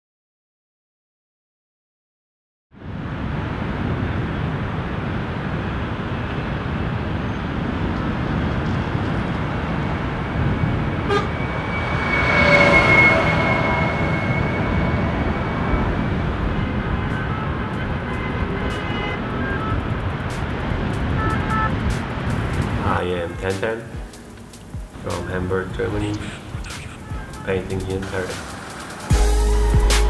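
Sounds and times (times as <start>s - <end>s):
heavy road traffic: 2.8s - 30.0s
vehicle horn: 10.9s - 20.2s, 21.1s - 21.9s.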